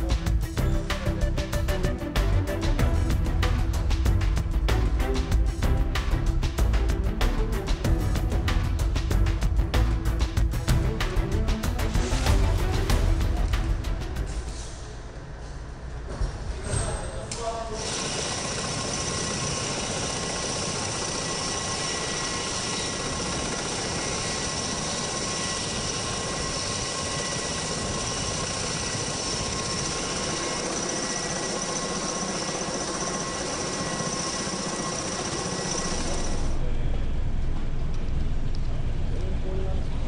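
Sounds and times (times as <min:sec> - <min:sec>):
aircraft engines and rotors whining: 0:17.9 - 0:40.0.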